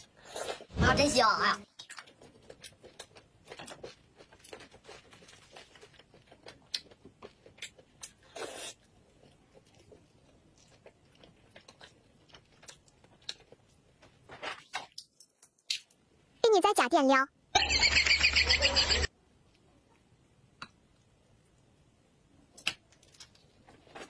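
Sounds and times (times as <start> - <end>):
person chewing and smacking: 1.7 - 14.2.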